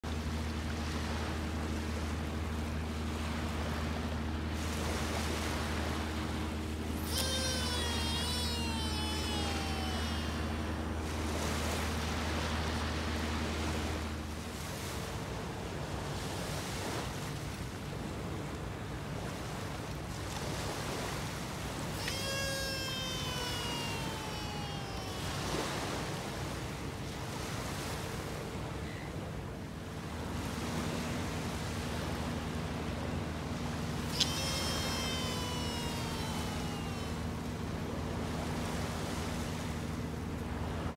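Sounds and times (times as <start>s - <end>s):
wind: 0.0s - 40.9s
steady low hum: 0.1s - 20.3s
reel spool whine: 0.1s - 40.9s
surf: 0.1s - 40.9s.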